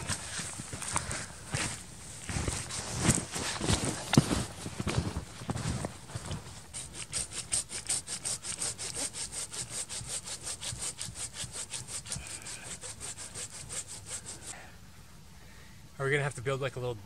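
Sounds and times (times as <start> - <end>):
hand saw cutting a branch: 6.7 - 14.5.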